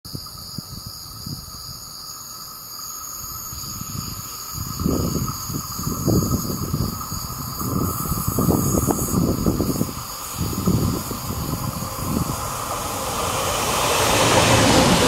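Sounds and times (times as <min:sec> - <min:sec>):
wind buffeting microphone: 0:03.5 - 0:15.0.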